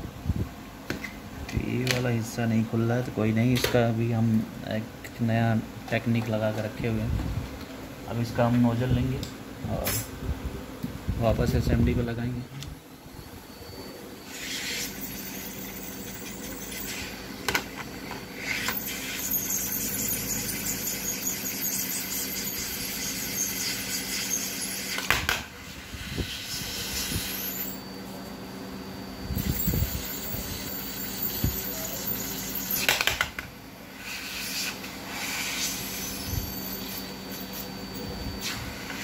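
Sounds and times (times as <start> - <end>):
steady low hum: 0.0 - 39.0
hot air hissing from nozzle: 14.2 - 17.2, 18.4 - 25.1, 25.8 - 27.7, 34.0 - 37.7.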